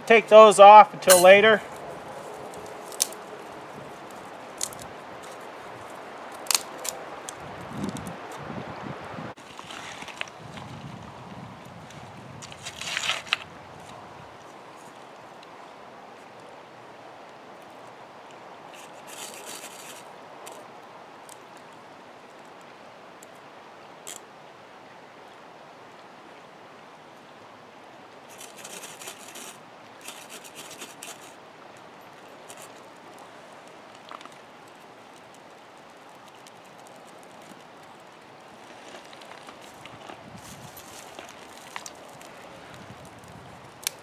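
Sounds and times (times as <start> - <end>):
creek flowing over stones: 0.0 - 8.6, 9.3 - 44.0
scraping and crinkling: 9.4 - 10.8, 12.4 - 14.0, 18.7 - 20.6, 28.3 - 31.4, 32.3 - 33.3, 34.0 - 44.0.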